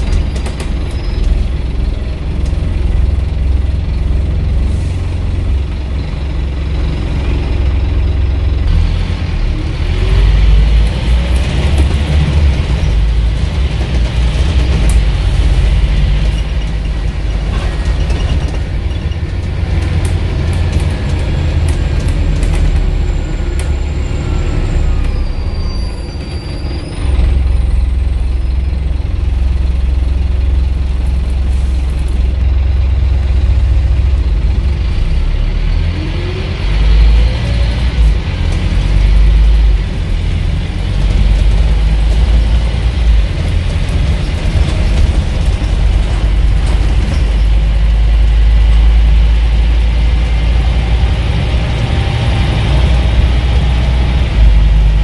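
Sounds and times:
bus engine drone: 0:00.0 - 0:55.0
drivetrain whine: 0:00.0 - 0:55.0
interior rattles: 0:11.2 - 0:23.8, 0:38.5 - 0:49.0.

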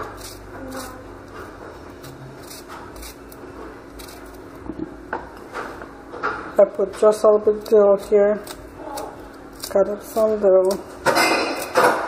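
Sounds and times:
knife slicing cucumber: 0:02.0 - 0:04.4.

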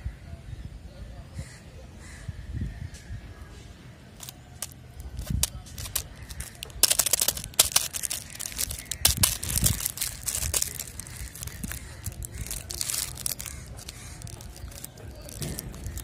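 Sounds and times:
plastic wrapper crinkling: 0:04.2 - 0:16.0.

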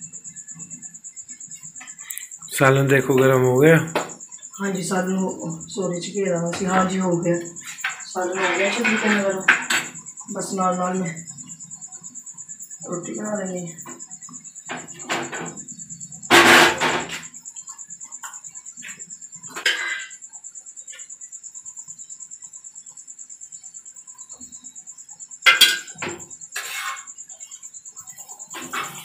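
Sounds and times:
spatula knocking and scraping pans: 0:06.5 - 0:10.0, 0:14.7 - 0:15.6, 0:16.3 - 0:17.4, 0:18.2 - 0:20.2, 0:25.5 - 0:27.2, 0:28.5 - 0:29.0.

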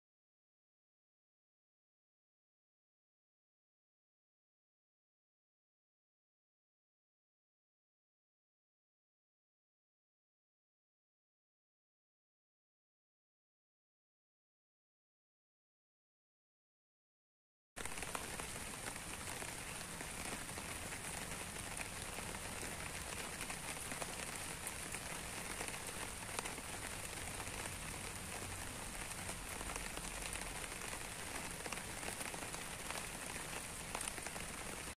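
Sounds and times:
rain falling on leaves: 0:17.8 - 0:35.0.

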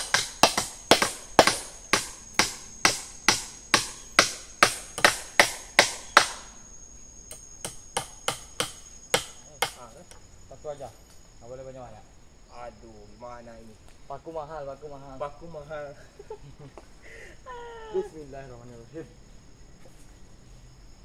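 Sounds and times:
hammer striking nails into wood: 0:00.0 - 0:06.5, 0:07.3 - 0:09.8.

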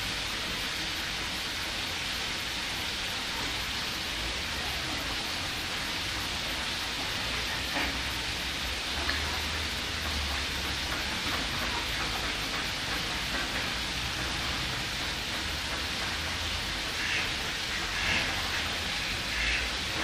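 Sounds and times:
water rushing: 0:00.0 - 0:20.0
ducks calling: 0:16.8 - 0:20.0.

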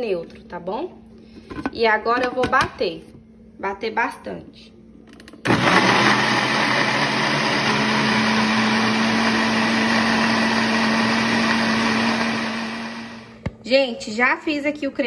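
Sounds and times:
blender running: 0:05.4 - 0:13.4.

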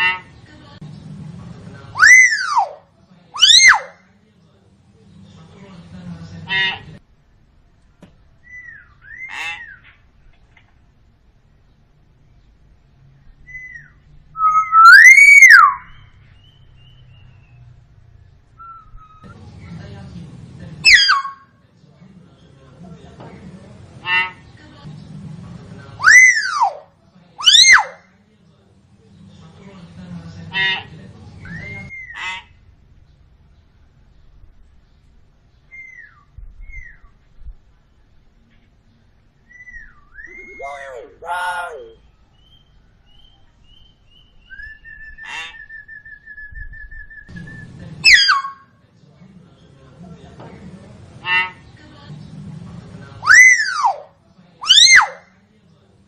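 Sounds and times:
bird whistling: 0:02.0 - 0:02.7, 0:08.4 - 0:09.8, 0:13.4 - 0:17.6, 0:18.6 - 0:19.4, 0:31.4 - 0:32.2, 0:35.7 - 0:37.2, 0:39.4 - 0:48.7, 0:53.2 - 0:54.0
myna harsh shrieks: 0:02.0 - 0:02.8, 0:03.4 - 0:04.0, 0:14.4 - 0:15.9, 0:26.0 - 0:26.8, 0:53.2 - 0:55.3
myna whistles: 0:14.4 - 0:15.9.

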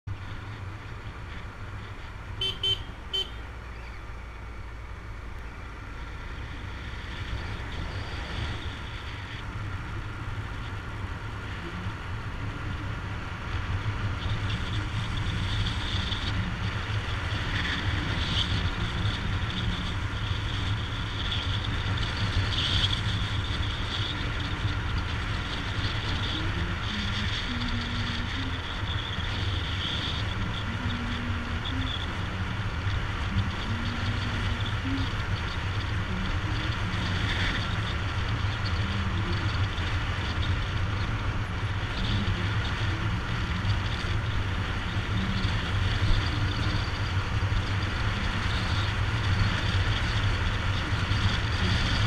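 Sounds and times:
motorcycle engine running: 0:00.0 - 0:52.0
horn toots: 0:02.4 - 0:03.5
wind rumbling on microphone: 0:03.6 - 0:52.0.

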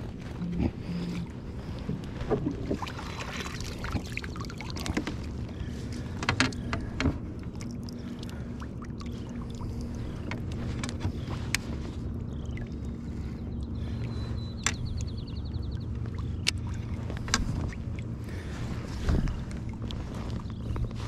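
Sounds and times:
fish splashing in water: 0:02.5 - 0:05.3.

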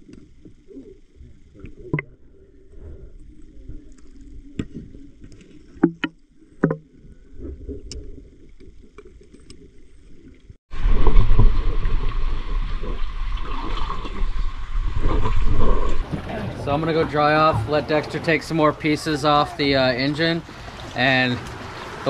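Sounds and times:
water and movement noise: 0:00.0 - 0:22.0
sharp knocks underwater: 0:04.5 - 0:08.0, 0:10.8 - 0:18.1
wind rumble on microphone: 0:10.7 - 0:18.3.

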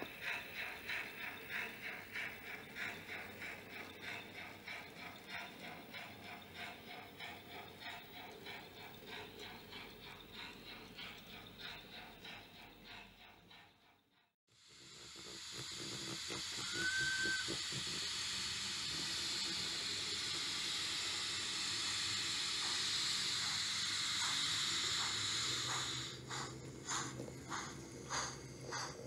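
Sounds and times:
steam hiss: 0:00.0 - 0:13.9, 0:14.5 - 0:29.0
rhythmic steam chuffs: 0:00.0 - 0:29.0
high train whistle: 0:16.6 - 0:17.6.

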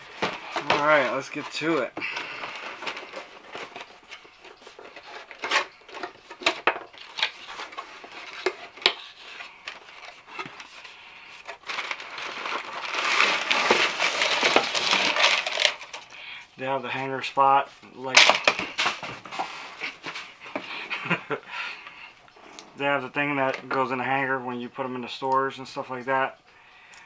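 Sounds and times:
paper and cardboard rustling: 0:00.0 - 0:16.1, 0:17.6 - 0:21.4.

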